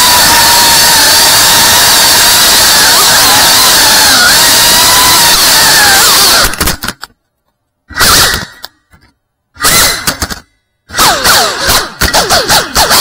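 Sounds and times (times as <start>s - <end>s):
quadcopter motors whining: 0.0s - 6.6s.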